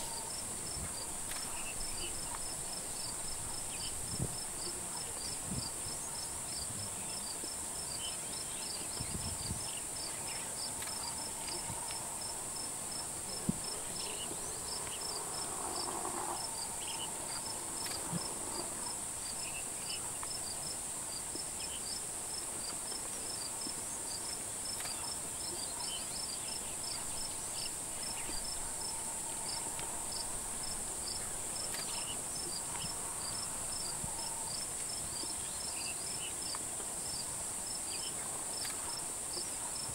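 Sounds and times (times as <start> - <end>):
cricket chirping: 0.0 - 39.9
insects shrill drone: 8.3 - 20.6, 25.8 - 36.3.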